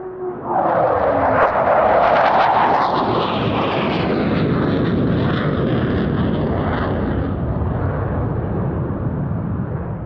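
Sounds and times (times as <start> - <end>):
high engine whine: 0.0 - 5.0
jet engines flying overhead: 0.0 - 10.0.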